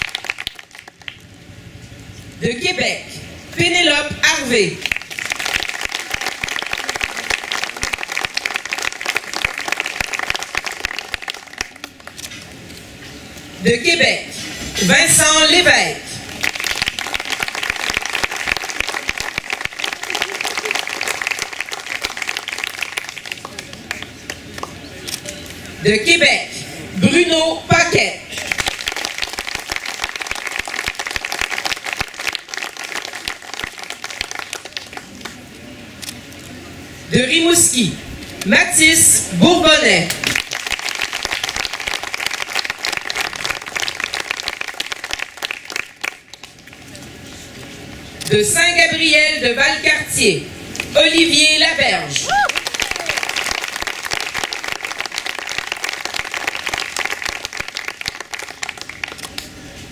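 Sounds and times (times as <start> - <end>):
audience applauding: 0.0 - 1.2, 4.8 - 12.2, 16.3 - 24.8, 28.3 - 35.4, 40.2 - 46.9, 52.2 - 59.5.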